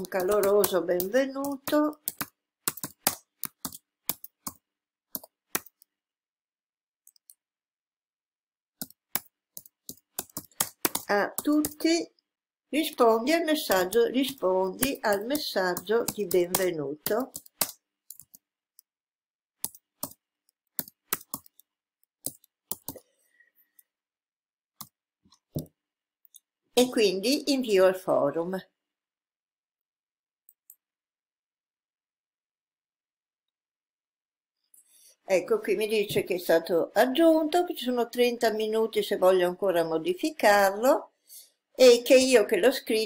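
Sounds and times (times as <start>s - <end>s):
computer keyboard typing: 0.0s - 5.9s, 8.8s - 11.9s, 13.2s - 18.5s, 19.6s - 23.1s.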